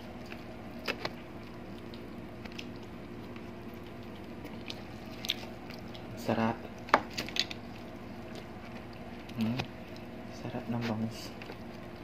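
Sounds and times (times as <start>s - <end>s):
chewing: 0.0s - 12.0s
fingers clicking in food: 0.3s - 6.1s.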